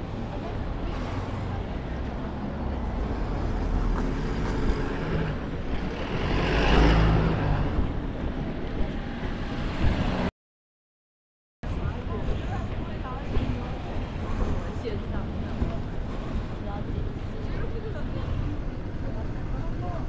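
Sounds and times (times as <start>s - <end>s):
road rumble: 0.0s - 10.3s, 11.6s - 20.0s
vehicle passing: 0.8s - 10.3s.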